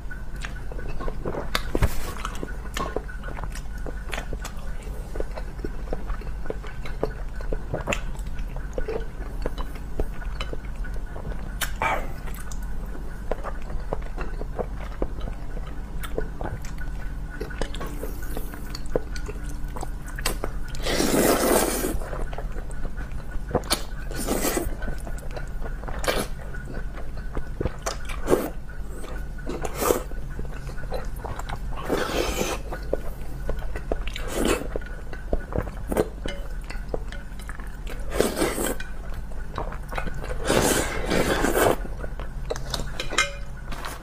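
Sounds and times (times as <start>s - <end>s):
wet chewing: 0.4s - 44.0s
slurping noodles: 20.8s - 22.2s, 24.1s - 24.8s, 29.6s - 30.2s, 31.8s - 32.8s, 38.1s - 38.8s, 40.3s - 41.9s.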